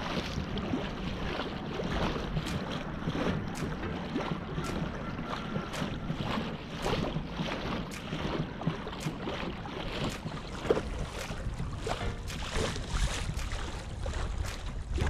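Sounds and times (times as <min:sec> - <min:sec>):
water lapping against kayak hull: 0:00.0 - 0:15.0
wind buffeting microphone: 0:00.0 - 0:15.0.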